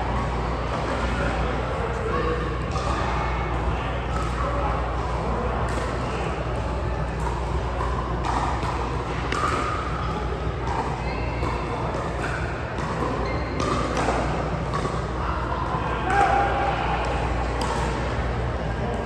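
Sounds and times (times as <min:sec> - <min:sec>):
distant voices chatter: 0:00.0 - 0:19.0
steady low hum: 0:00.0 - 0:19.0.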